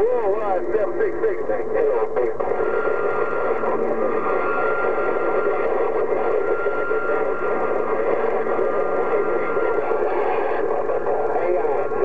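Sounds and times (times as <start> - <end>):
radio static and hiss: 0.0 - 12.0
steady high whistle: 2.5 - 11.2.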